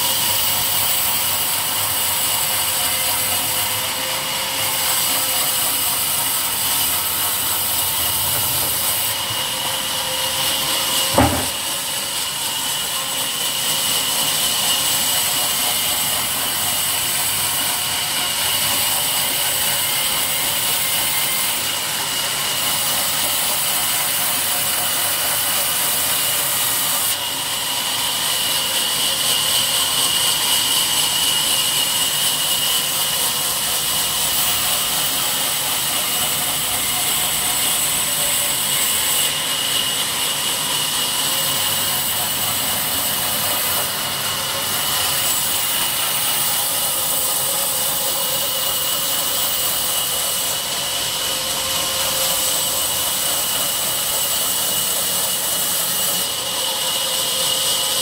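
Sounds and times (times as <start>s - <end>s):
band saw ripping log: 10.6s - 11.8s.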